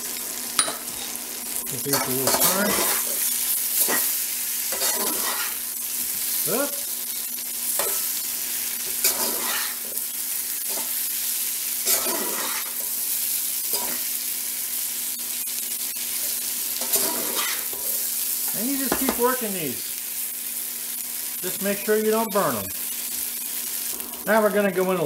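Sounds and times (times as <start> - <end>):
potatoes sizzling in a skillet: 0.0 - 25.0
metal spatula scraping a pan: 1.9 - 5.6, 8.8 - 11.0, 11.8 - 13.0, 13.6 - 14.1, 15.4 - 19.2.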